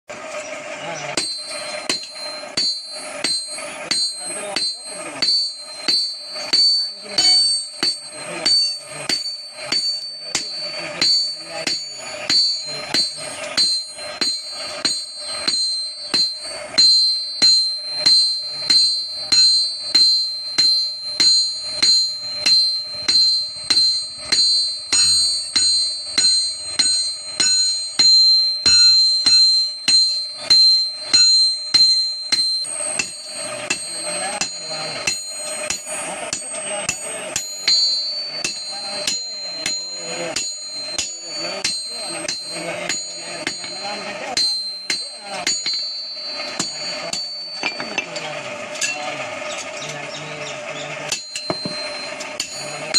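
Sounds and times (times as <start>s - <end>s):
hammer striking anvil with ringing: 0.1s - 52.9s.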